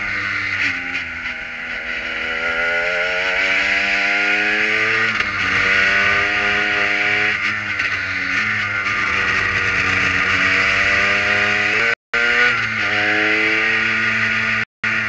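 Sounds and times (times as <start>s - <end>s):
race car engine revving: 0.0s - 15.0s.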